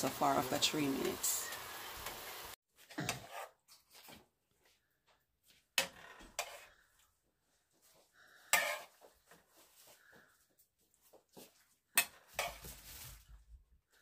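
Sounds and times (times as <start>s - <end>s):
spoon scraping steel pot: 5.8s - 6.8s, 8.5s - 9.0s.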